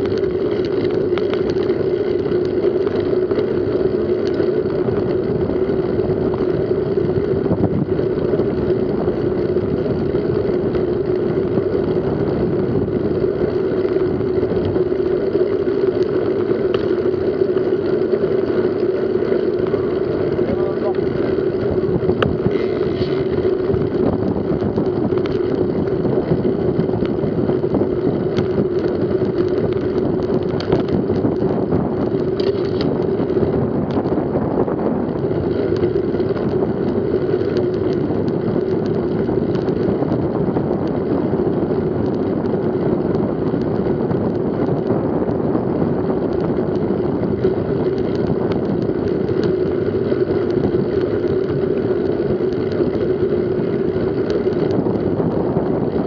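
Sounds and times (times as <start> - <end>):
bike tyres rolling on asphalt: 0.0 - 56.0
wind over microphone: 0.0 - 56.0
faint ticks: 14.6 - 17.0.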